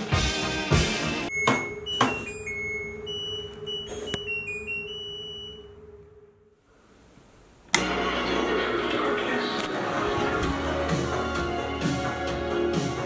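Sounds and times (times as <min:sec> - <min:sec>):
loud music: 0:00.0 - 0:01.3, 0:07.8 - 0:13.0
washing machine beeping tune: 0:01.3 - 0:06.4
washing machine hum: 0:01.3 - 0:06.5.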